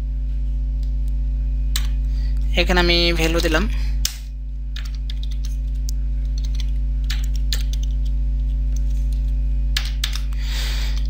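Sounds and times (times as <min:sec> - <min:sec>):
low electrical hum: 0:00.0 - 0:11.0
keyboard keystrokes: 0:06.4 - 0:08.0.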